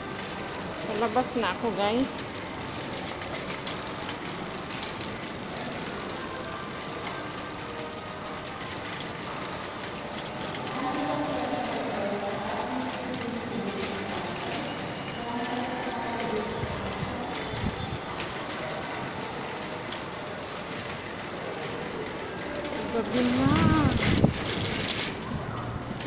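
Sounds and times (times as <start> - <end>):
shopping trolley rattling on tiles: 0.0 - 26.0.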